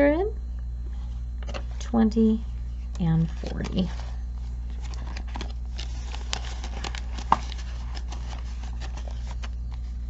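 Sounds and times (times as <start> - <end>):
paper money rustling: 3.0 - 10.0.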